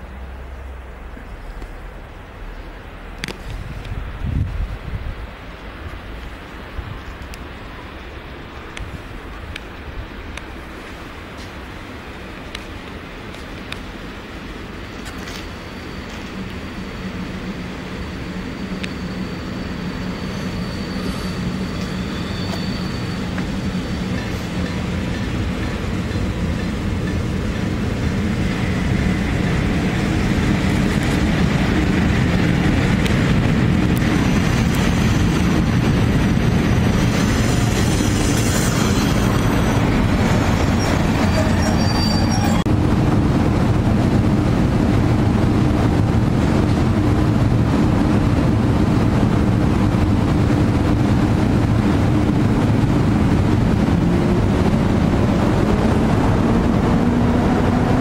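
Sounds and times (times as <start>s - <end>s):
train rolling past: 0.0s - 58.0s
brake squeals: 14.9s - 25.3s, 40.6s - 42.7s.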